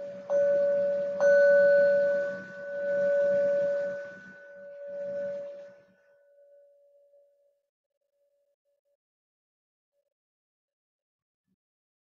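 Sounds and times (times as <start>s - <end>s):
meditation bell ringing: 0.0s - 7.5s.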